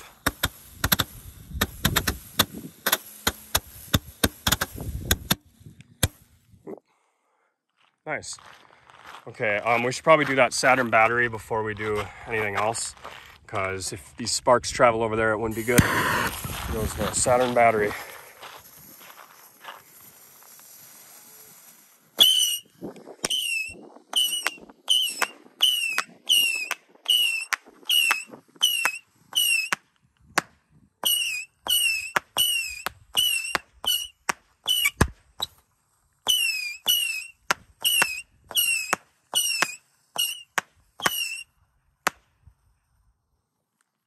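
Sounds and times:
whistling rockets firing: 0:00.0 - 0:06.2, 0:15.5 - 0:29.8, 0:31.0 - 0:35.6, 0:36.2 - 0:41.5.

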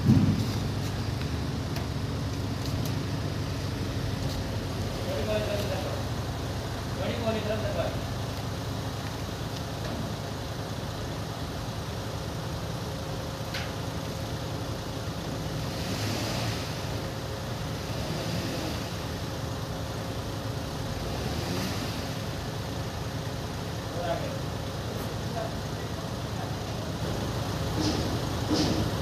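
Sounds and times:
vehicle engine rumbling: 0:00.0 - 0:29.0
hiss: 0:15.6 - 0:17.0, 0:17.8 - 0:19.1.

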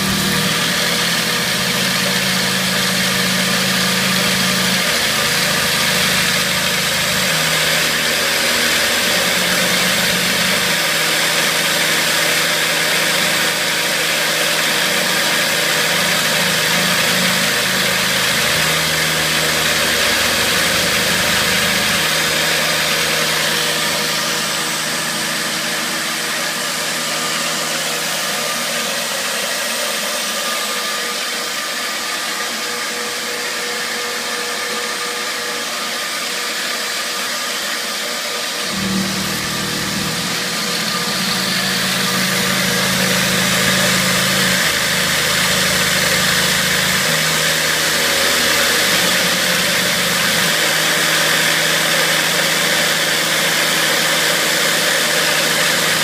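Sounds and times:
low motor hum: 0:00.0 - 0:29.1, 0:38.6 - 0:53.7
milling machine cutting metal: 0:00.0 - 0:56.0.

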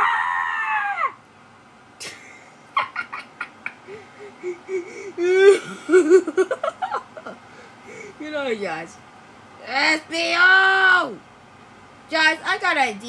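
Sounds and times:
high-pitched scream: 0:00.0 - 0:01.2.

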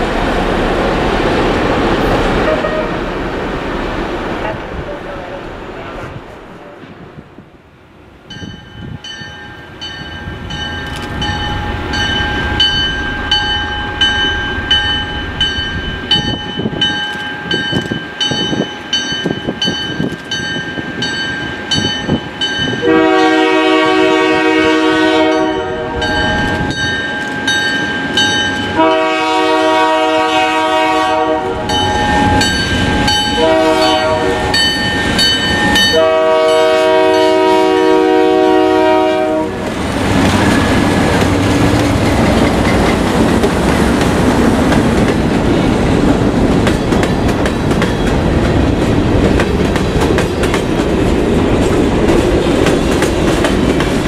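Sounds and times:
diesel locomotive engine rumble: 0:00.0 - 0:54.0
train bell ringing: 0:02.4 - 0:03.0, 0:08.3 - 0:23.4, 0:25.3 - 0:28.9, 0:31.7 - 0:37.4
train air horn blasts: 0:02.4 - 0:03.2, 0:22.8 - 0:26.4, 0:28.8 - 0:32.4, 0:33.2 - 0:34.7, 0:35.8 - 0:39.7.

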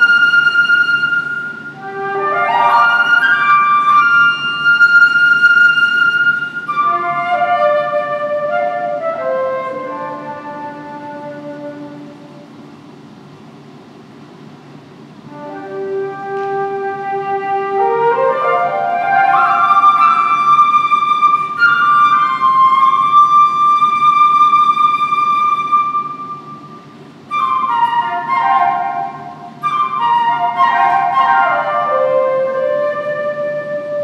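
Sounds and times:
solo flute playing: 0:00.0 - 0:12.7, 0:15.2 - 0:34.0.

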